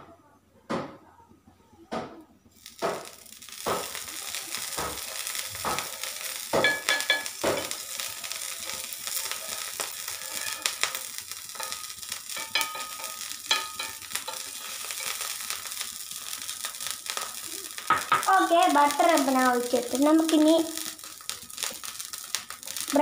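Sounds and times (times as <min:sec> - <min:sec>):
butter sizzling on a griddle: 0:02.5 - 0:23.0
knocks and scrapes on a pan: 0:02.8 - 0:16.2.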